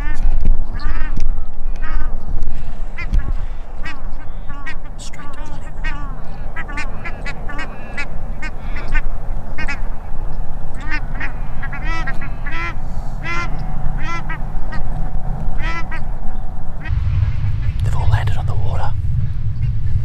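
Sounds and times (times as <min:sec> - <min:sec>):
swans and ducks calling: 0:00.0 - 0:16.9.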